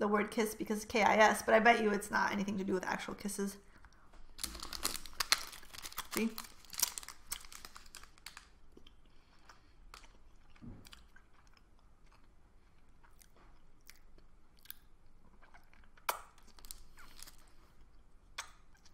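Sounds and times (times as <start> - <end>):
person chewing: 3.7 - 18.9
small wet mouth clicks: 18.4 - 18.9.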